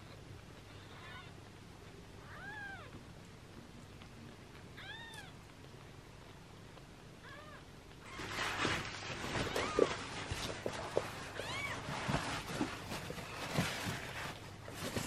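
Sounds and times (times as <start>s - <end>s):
kittens mewing: 9.4s - 12.2s.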